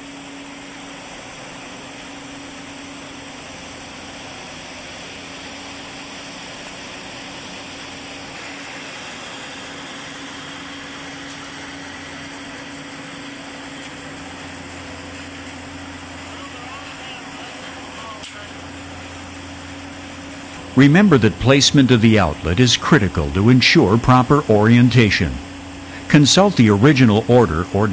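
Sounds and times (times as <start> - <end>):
mechanical drone with hiss: 0.0 - 27.9.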